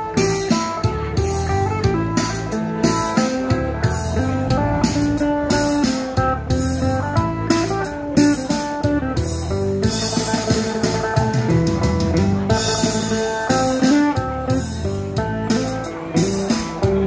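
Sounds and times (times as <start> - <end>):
plucked lute melody: 0.0 - 17.0.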